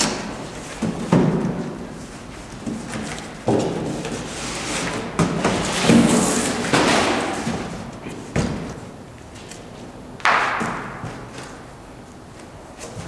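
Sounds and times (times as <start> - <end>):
cardboard rustling and scraping: 2.0 - 8.3.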